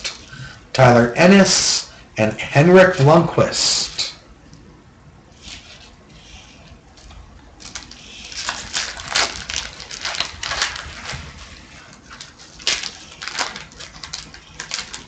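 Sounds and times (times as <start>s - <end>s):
cards crinkling and rustling: 7.0s - 15.0s.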